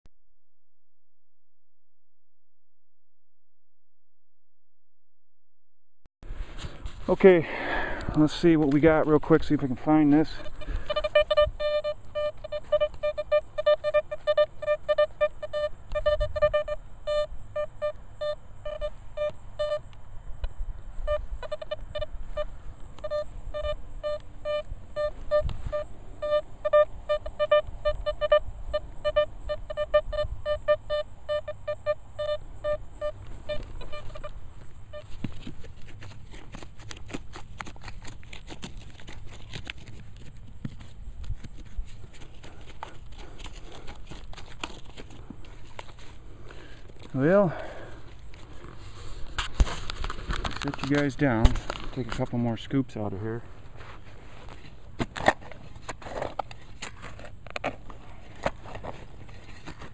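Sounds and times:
metal detector beeping: 0:08.2 - 0:19.9, 0:21.0 - 0:35.5, 0:45.4 - 0:52.5
digging tool scraping soil: 0:35.0 - 0:47.4.

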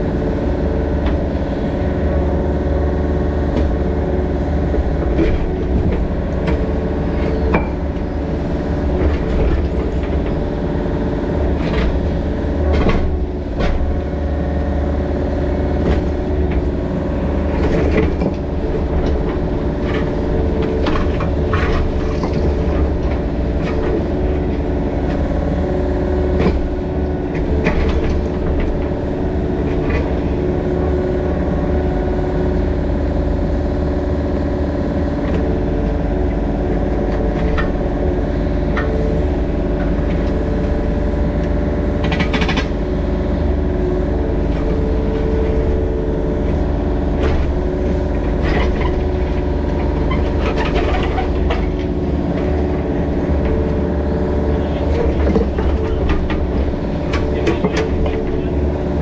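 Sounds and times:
diesel engine running: 0:00.0 - 0:59.0
short clanks and rattles: 0:42.0 - 0:42.9, 0:48.3 - 0:53.6.

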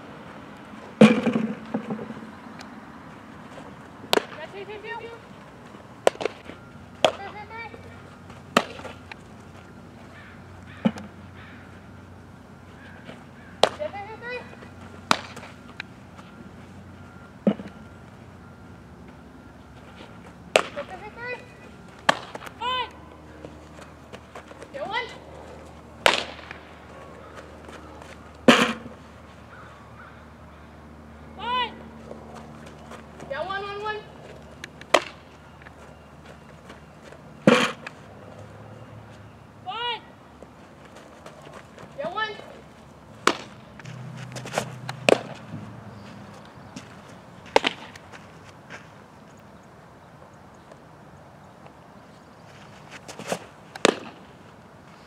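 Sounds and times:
softball smacks: 0:04.1 - 0:04.4, 0:06.0 - 0:06.4, 0:08.5 - 0:09.0, 0:13.6 - 0:13.9, 0:15.1 - 0:15.5, 0:20.5 - 0:20.9, 0:22.0 - 0:22.5, 0:26.0 - 0:26.6, 0:28.4 - 0:28.8, 0:34.8 - 0:35.2, 0:37.4 - 0:38.0, 0:43.2 - 0:43.6, 0:44.4 - 0:45.4, 0:47.5 - 0:48.0, 0:53.2 - 0:54.2.

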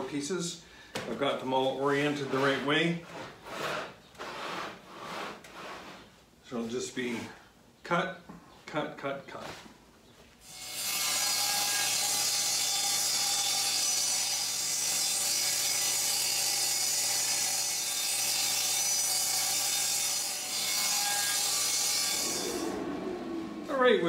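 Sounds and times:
table saw cutting wood: 0:10.4 - 0:24.0.

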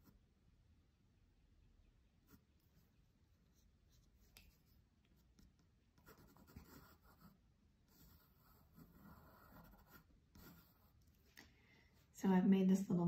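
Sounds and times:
pencil scratching on paper: 0:03.5 - 0:11.2.

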